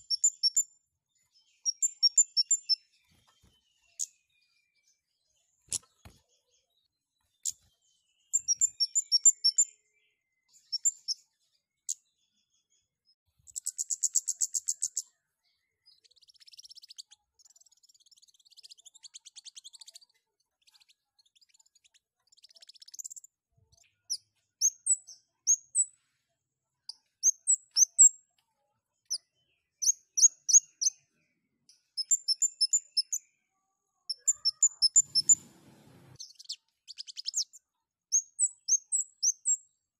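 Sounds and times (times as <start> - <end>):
soft bird twittering: 0.0 - 26.0, 26.9 - 28.2, 29.1 - 33.3, 34.1 - 39.7
songbird chirping: 0.0 - 26.2, 26.8 - 39.9
buzzy bird trill: 1.6 - 2.8, 8.3 - 9.7, 34.1 - 35.5.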